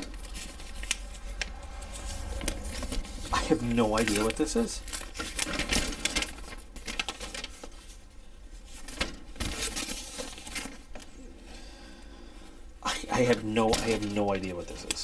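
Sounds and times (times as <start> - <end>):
paper rustling and crinkling: 0.0 - 11.3, 13.1 - 15.0.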